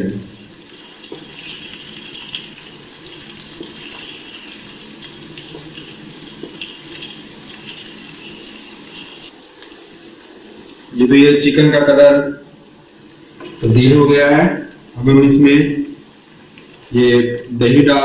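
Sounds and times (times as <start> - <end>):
chicken sizzling in a pan: 0.0 - 14.6
wooden spatula stirring in pan: 0.3 - 10.9.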